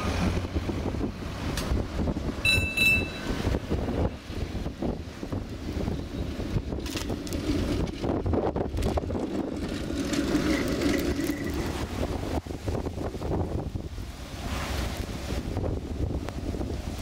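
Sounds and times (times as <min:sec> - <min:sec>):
tram passing on track: 0:00.0 - 0:17.0
wind buffeting microphone: 0:00.0 - 0:17.0
faint high tone: 0:02.4 - 0:03.3.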